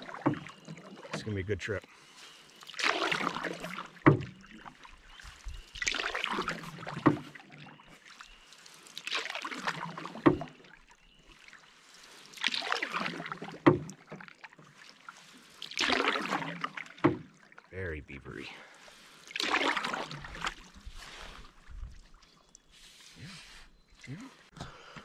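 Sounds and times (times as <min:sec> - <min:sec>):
paddle knock: 0:00.0 - 0:01.2, 0:03.9 - 0:04.4, 0:06.8 - 0:07.4, 0:10.2 - 0:10.5, 0:13.5 - 0:14.1, 0:17.0 - 0:17.3
paddle swishing water: 0:00.0 - 0:17.7, 0:18.6 - 0:24.6.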